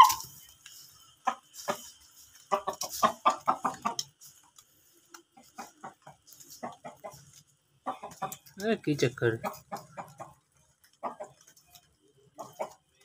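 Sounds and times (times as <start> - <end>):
rooster clucking: 0.0 - 0.3, 1.0 - 13.0.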